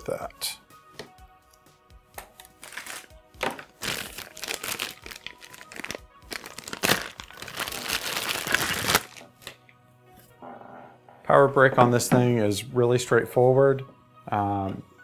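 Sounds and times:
plastic bag crinkling: 0:02.6 - 0:09.2.

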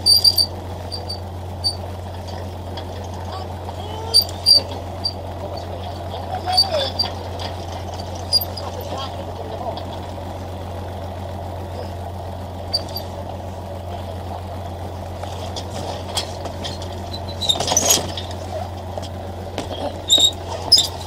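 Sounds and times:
knocks and clatter: 0:00.0 - 0:10.2, 0:15.2 - 0:21.0
boat engine humming: 0:00.0 - 0:21.0.

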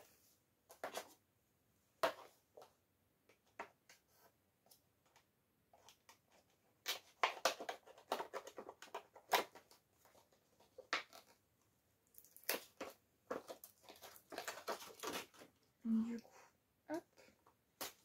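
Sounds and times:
packaging crackling and rustling: 0:12.2 - 0:15.6.

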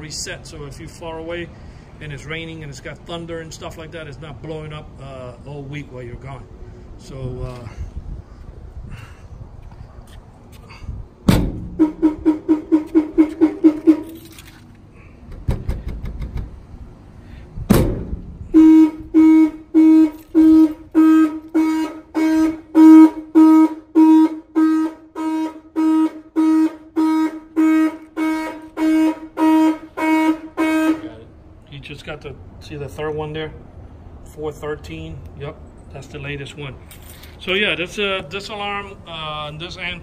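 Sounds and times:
loud thunks: 0:11.2 - 0:11.8, 0:15.3 - 0:16.6, 0:17.6 - 0:18.3
truck horn honking alarm: 0:11.6 - 0:14.4, 0:18.4 - 0:31.3.

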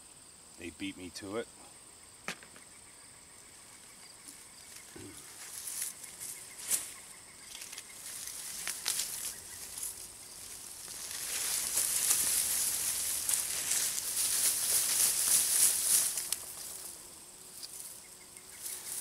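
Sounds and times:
leaves and soil rustling: 0:03.6 - 0:19.0
stems and mulch snapping: 0:07.5 - 0:16.8.

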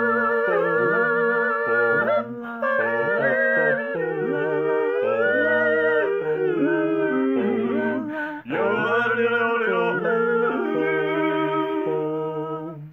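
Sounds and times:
a cappella harmony yodeling: 0:00.0 - 0:12.9.

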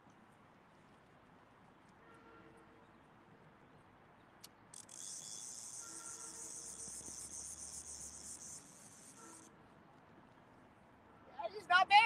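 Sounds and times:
fishing reel drag buzzing: 0:04.7 - 0:09.5.

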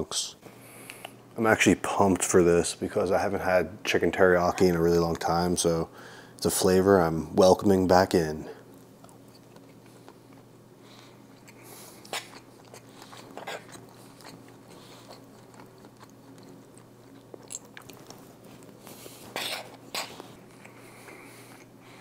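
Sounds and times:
faint steady hum: 0:00.0 - 0:22.0
man chewing food: 0:08.6 - 0:22.0.

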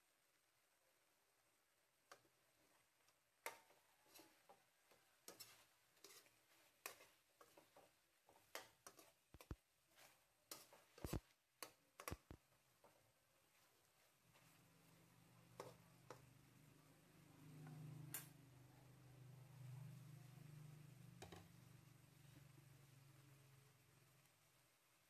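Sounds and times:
utensils scraping a metal wok: 0:03.4 - 0:12.2, 0:15.6 - 0:16.3.

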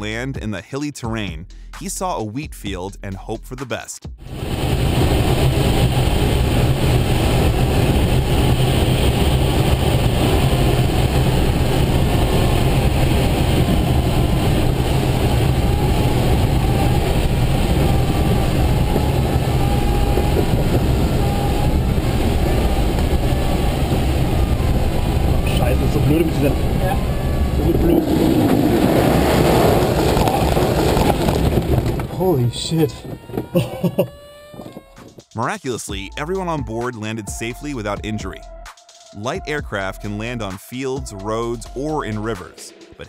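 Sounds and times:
rumbling rush of airflow: 0:04.2 - 0:35.2.

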